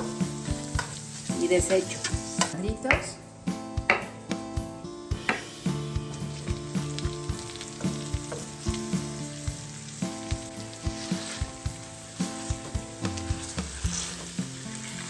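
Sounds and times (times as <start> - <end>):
potatoes sizzling in a skillet: 0.0 - 4.0, 5.2 - 15.0
background music with steady beat: 0.0 - 14.8
metal utensil scraping a pan: 10.9 - 11.5, 13.2 - 15.0.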